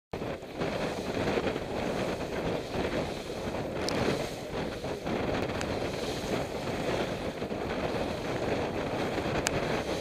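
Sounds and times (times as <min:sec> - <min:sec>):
wind buffeting microphone: 0:00.1 - 0:10.0
water rushing along a hull: 0:00.2 - 0:10.0.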